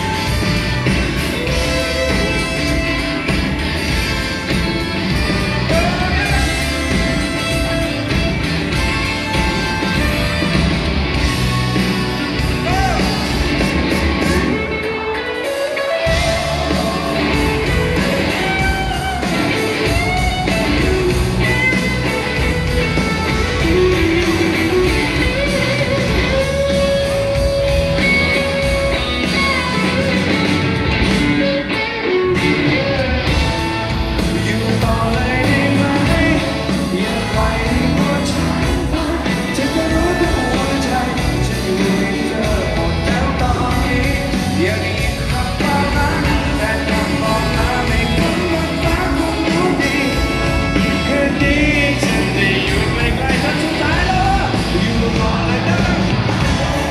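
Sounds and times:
live rock band with horns: 0.0s - 56.9s
person singing: 5.6s - 7.8s, 12.6s - 13.3s, 34.2s - 56.9s.

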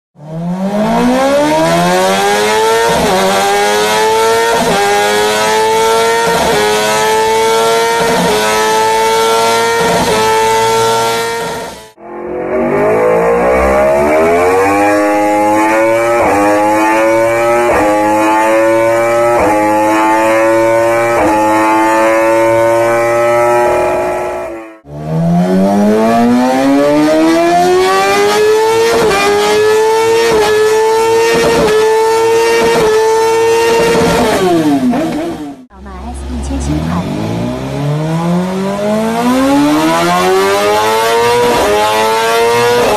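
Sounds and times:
superbike engines accelerating: 12.4s - 42.9s.

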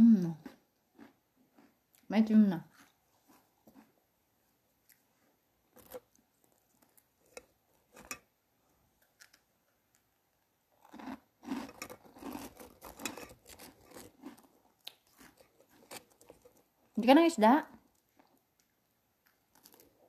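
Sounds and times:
chewing crunchy food: 0.3s - 2.1s, 2.7s - 4.0s, 4.8s - 8.3s, 10.8s - 17.0s, 17.7s - 20.0s.

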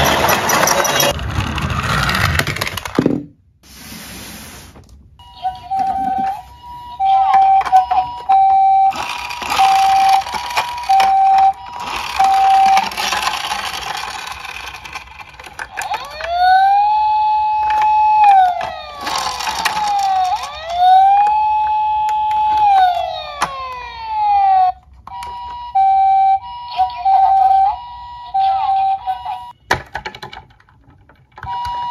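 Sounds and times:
toy siren wail: 5.2s - 29.6s, 31.4s - 31.9s
toy two-tone siren: 5.2s - 29.6s, 31.4s - 31.9s.

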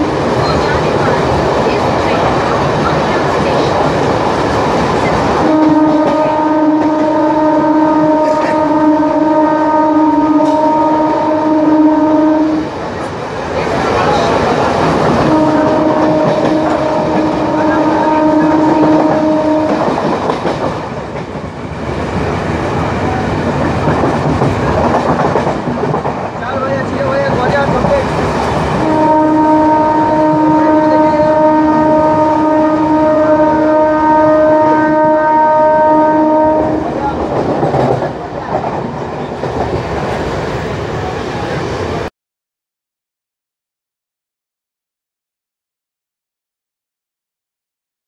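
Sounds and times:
train horn blasts: 5.4s - 12.7s, 15.2s - 20.0s, 28.8s - 37.0s
train wheels clattering: 14.1s - 29.0s, 36.8s - 40.7s.

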